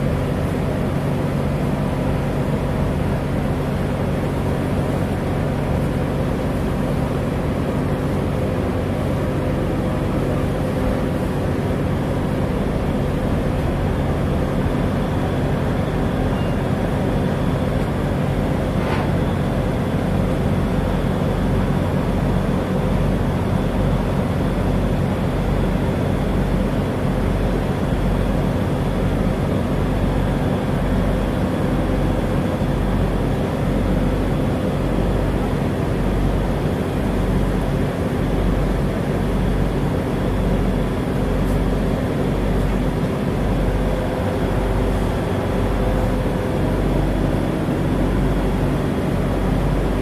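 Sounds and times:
ferry engines droning: 0.0 - 50.0.

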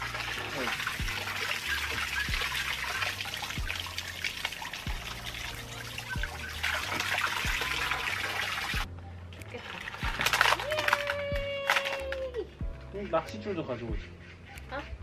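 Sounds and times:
water spraying into pool: 0.0 - 8.9
background music with low beat: 0.0 - 15.0.

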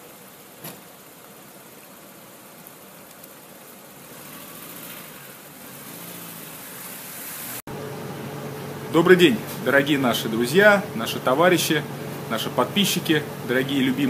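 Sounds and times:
traffic noise: 2.3 - 10.2.

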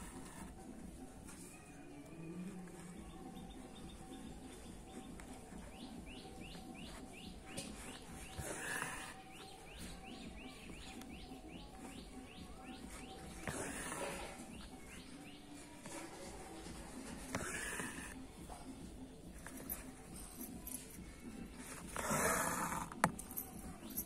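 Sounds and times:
bird chirping: 3.0 - 8.6.

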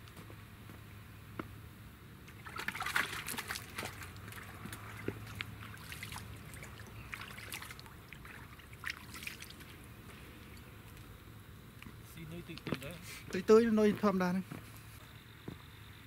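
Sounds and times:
hands splashing in water: 2.3 - 9.8
water trickling and dripping: 2.3 - 11.1.

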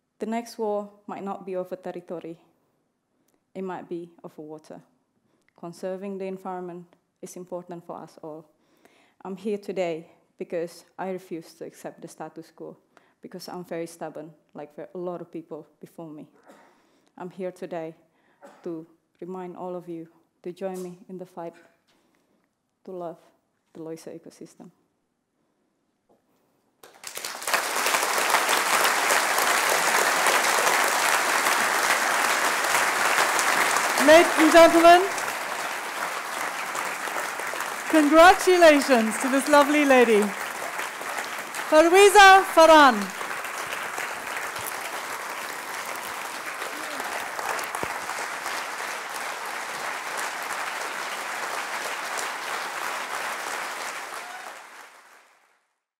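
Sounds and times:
audience applause: 26.8 - 55.5.

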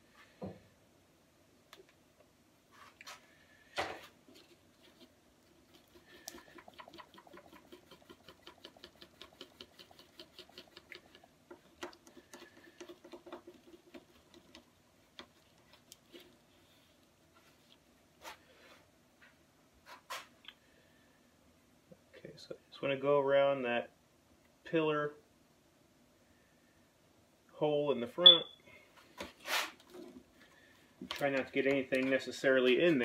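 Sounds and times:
stir stick scraping and tapping: 4.3 - 17.8, 29.8 - 33.0.

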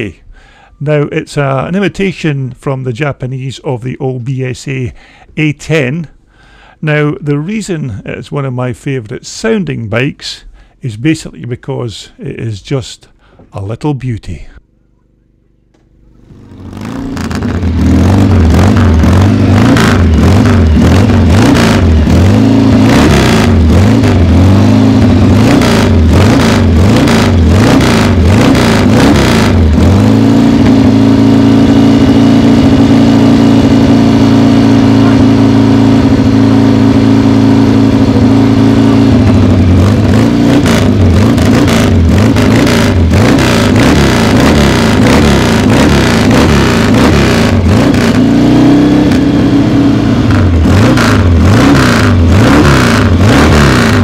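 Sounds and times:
motorcycle engine revving: 15.1 - 54.0.

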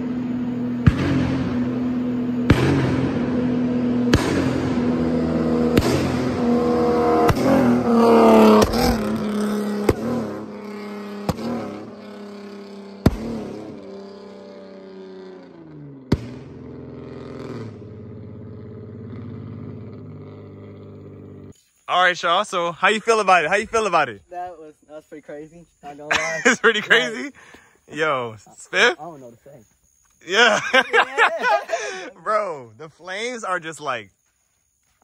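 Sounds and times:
car engine accelerating past: 0.0 - 21.5
exhaust pops: 0.7 - 13.9, 15.4 - 21.5.

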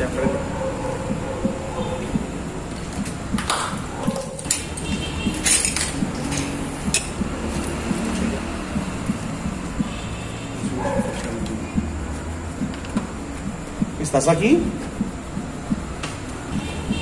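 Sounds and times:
sharp clinks and knocks: 3.1 - 7.2.

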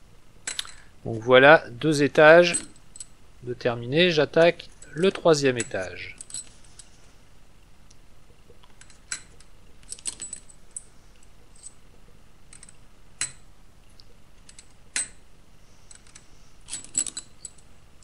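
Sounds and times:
steel nails clinking: 2.4 - 3.2, 4.4 - 6.9, 15.9 - 17.7.

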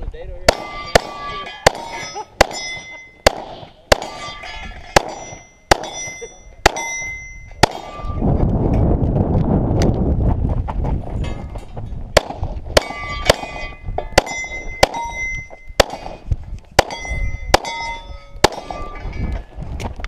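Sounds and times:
pistol shots: 0.5 - 4.4, 5.0 - 8.2, 12.2 - 15.2, 15.8 - 16.2, 16.8 - 18.9
steel plate clanging: 0.5 - 8.2, 11.1 - 12.0, 12.8 - 19.6.

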